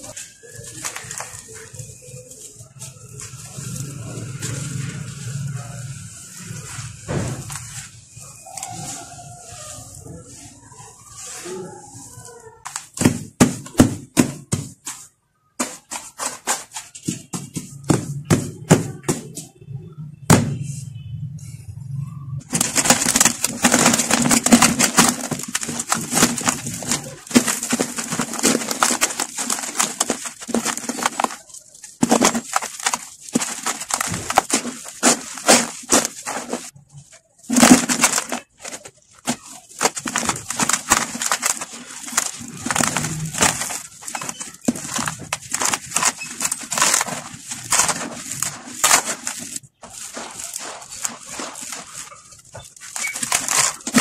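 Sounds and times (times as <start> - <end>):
hands crushing dry cement: 11.1 - 19.4, 22.5 - 54.0.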